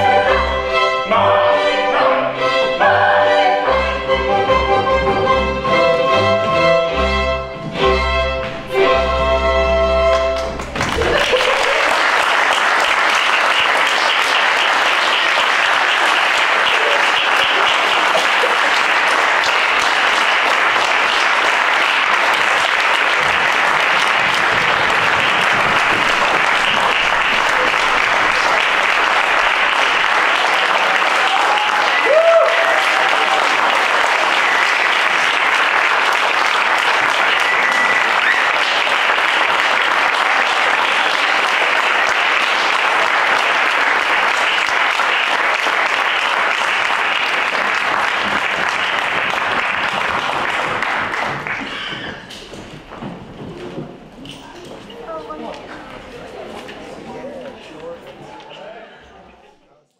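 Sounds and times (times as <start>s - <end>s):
audience applauding: 10.1s - 53.0s
person cheering: 30.8s - 33.6s.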